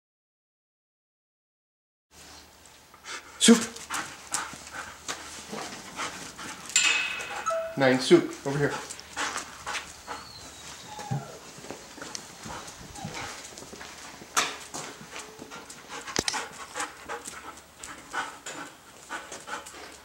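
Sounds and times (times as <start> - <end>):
dog claws clicking on concrete: 12.0 - 20.0.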